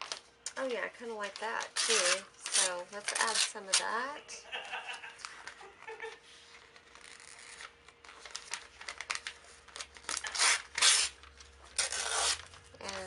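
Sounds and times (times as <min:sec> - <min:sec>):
magazine pages crackling and ripping: 0:01.2 - 0:03.9, 0:06.4 - 0:13.0.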